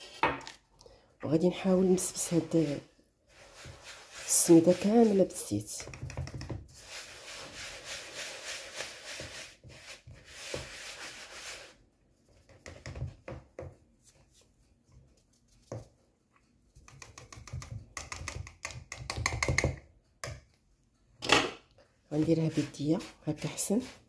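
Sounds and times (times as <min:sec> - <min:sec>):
whisk scraping in a bowl: 0:01.6 - 0:11.8, 0:22.1 - 0:24.0.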